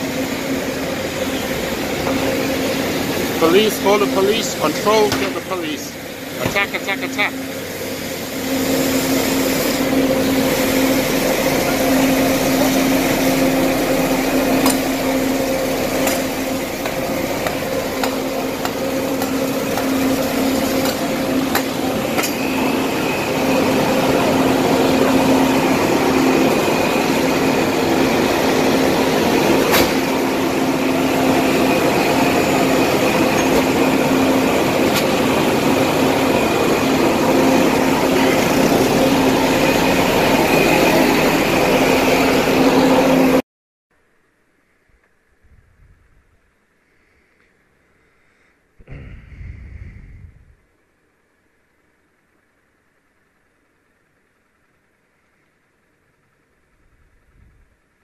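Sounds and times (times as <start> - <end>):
low hum with whine: 0.0 - 43.4, 44.0 - 58.0
street noise: 0.0 - 43.4.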